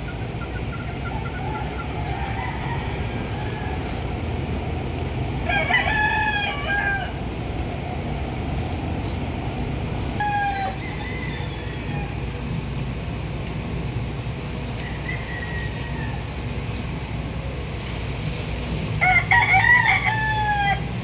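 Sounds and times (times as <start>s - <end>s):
steady low rumble: 0.0s - 19.4s
rooster crowing: 0.8s - 4.3s, 5.4s - 7.4s, 10.1s - 12.4s, 14.8s - 16.4s, 19.0s - 21.0s.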